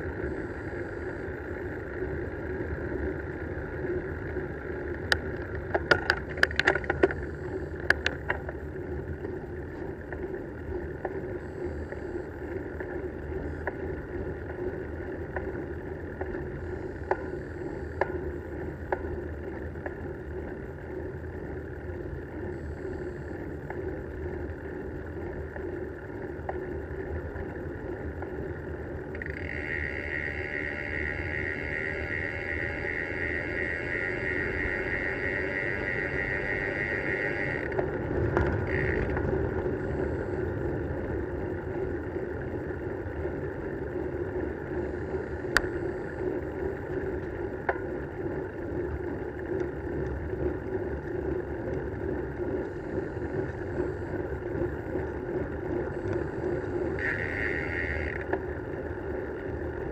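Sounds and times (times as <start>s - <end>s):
bicycle tyres rumbling on road: 0.0s - 59.9s
high steady buzz: 27.7s - 43.0s, 51.6s - 58.8s.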